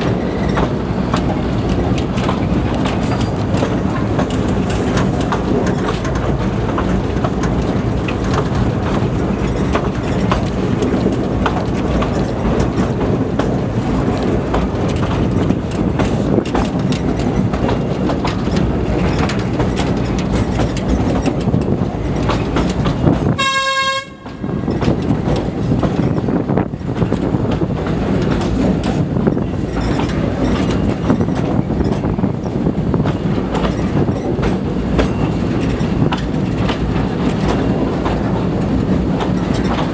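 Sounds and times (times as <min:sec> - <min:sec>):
train carriage rumble: 0:00.0 - 0:39.9
train wheel clicks: 0:00.0 - 0:39.9
train horn toot: 0:23.4 - 0:24.5.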